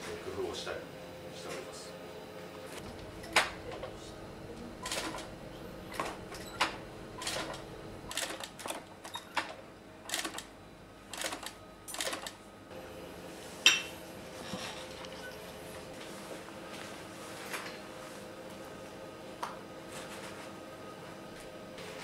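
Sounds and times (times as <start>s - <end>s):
faint steady hum: 0.1s - 8.6s.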